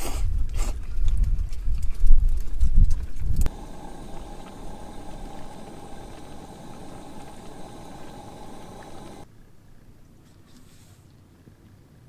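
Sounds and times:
engine humming: 3.5s - 9.2s.

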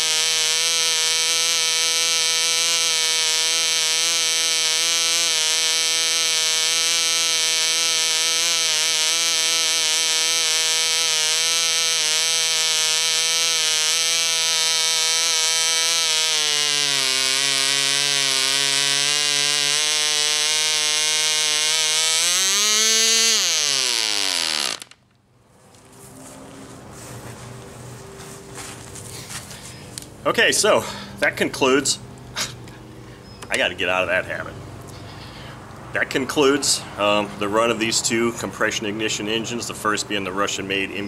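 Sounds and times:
model engine running at high revs: 0.0s - 25.0s
model engine winding down: 0.0s - 25.0s.

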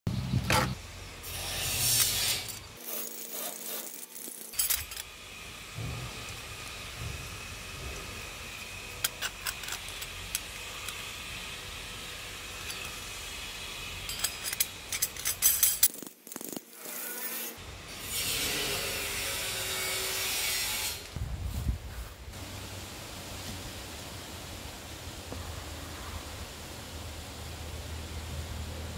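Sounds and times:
metal clicks and clinks: 3.9s - 5.1s, 9.0s - 11.0s, 14.1s - 16.7s
steady hiss: 20.1s - 28.9s.

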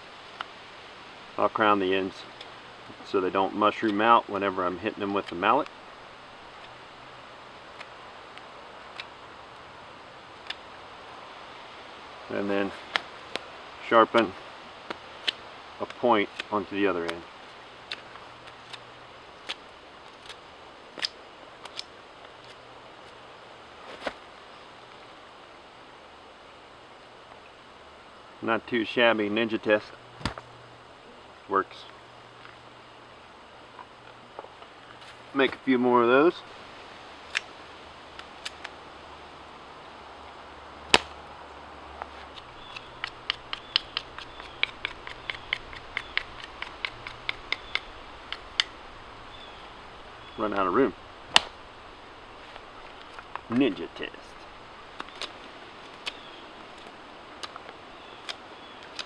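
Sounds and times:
knife shaving wood: 42.1s - 48.7s.

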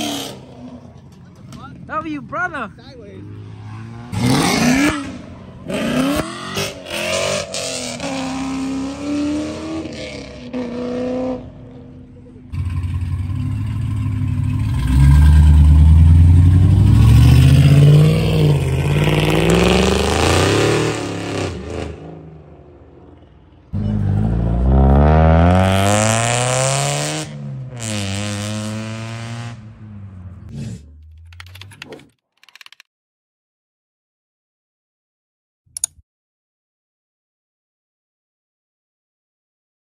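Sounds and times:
muscle car engines revving: 0.0s - 31.1s.

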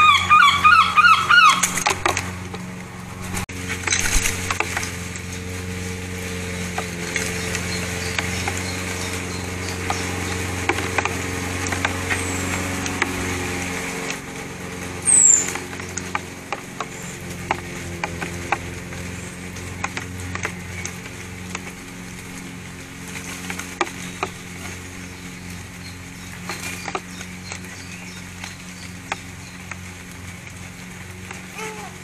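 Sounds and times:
high falling bird chirp: 0.0s - 2.4s, 15.0s - 16.2s
jackdaws calling: 0.0s - 29.9s
low hum: 0.0s - 32.0s.

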